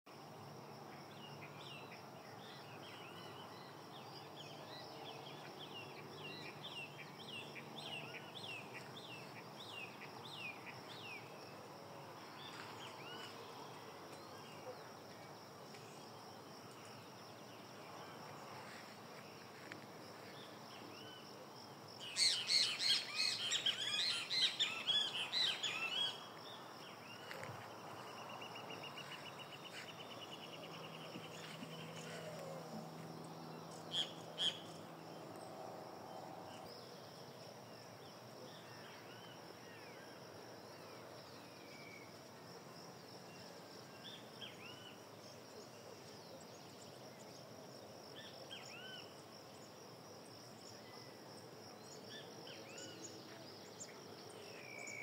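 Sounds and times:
birds chirping: 22.0s - 32.8s.

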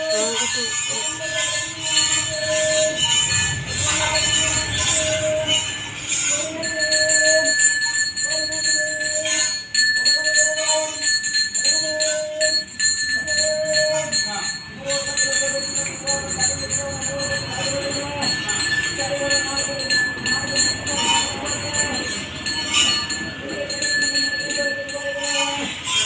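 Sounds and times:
jingling bells: 0.0s - 26.0s
percussion strikes: 0.0s - 26.0s.

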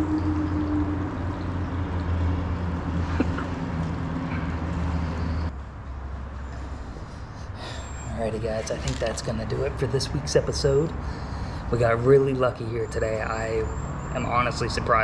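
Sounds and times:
low engine drone: 0.0s - 11.8s.

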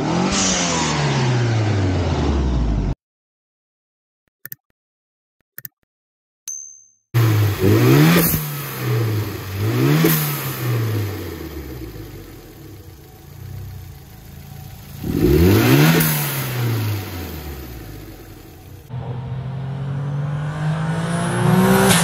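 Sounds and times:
car engine revving: 7.2s - 22.0s.

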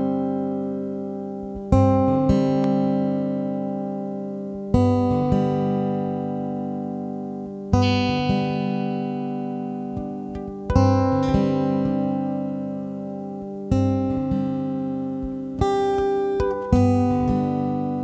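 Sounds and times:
guitar chords ringing: 0.0s - 18.0s.

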